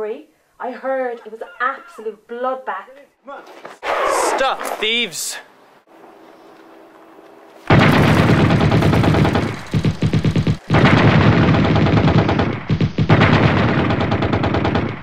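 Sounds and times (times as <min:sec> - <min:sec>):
rapid machine-gun fire: 0:07.7 - 0:15.0.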